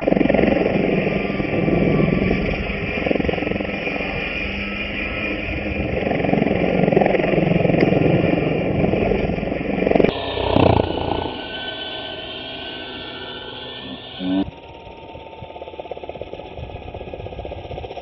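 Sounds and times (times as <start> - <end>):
high-pitched motor whine: 0.0 - 18.0
rotor blades whooshing: 5.6 - 14.6.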